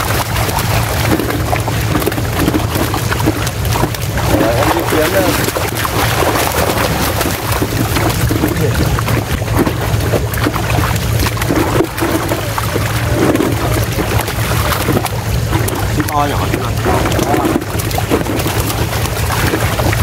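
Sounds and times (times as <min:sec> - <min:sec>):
fish splashing in shallow water: 0:00.0 - 0:20.0
steady low hum: 0:00.0 - 0:20.0.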